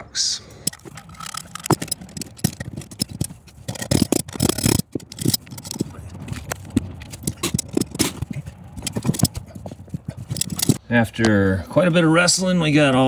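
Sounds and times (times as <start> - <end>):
knocks clicks and scrapes: 0.5 - 10.8.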